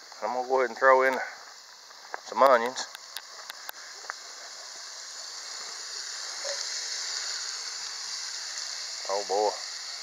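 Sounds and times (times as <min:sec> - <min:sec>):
bacon sizzling: 0:00.0 - 0:10.0.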